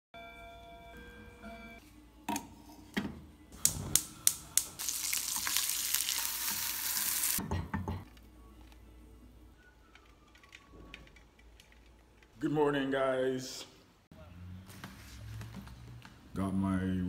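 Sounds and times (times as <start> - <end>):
egg sizzling in a pan: 4.6 - 7.4.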